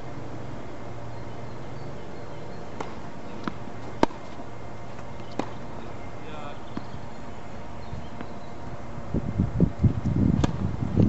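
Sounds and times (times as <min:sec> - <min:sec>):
low hum: 0:00.0 - 0:11.0
tennis ball bouncing: 0:02.7 - 0:05.9, 0:06.7 - 0:07.0, 0:10.4 - 0:10.6
tennis racket strikes: 0:02.8 - 0:04.4.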